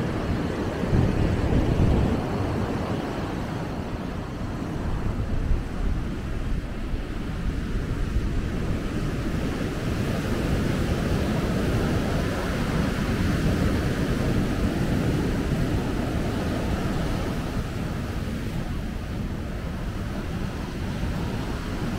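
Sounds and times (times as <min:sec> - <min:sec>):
wind buffeting microphone: 0:00.0 - 0:21.9
ocean surf breaking: 0:08.4 - 0:21.9.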